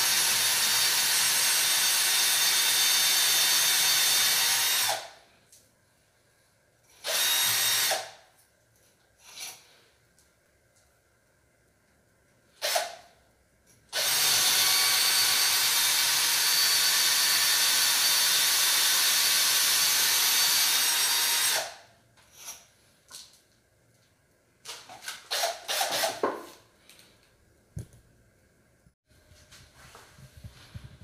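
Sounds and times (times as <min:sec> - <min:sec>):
power drill boring into wall: 0:00.0 - 0:05.1, 0:07.0 - 0:08.2, 0:12.6 - 0:13.0, 0:13.9 - 0:21.8, 0:25.1 - 0:26.4.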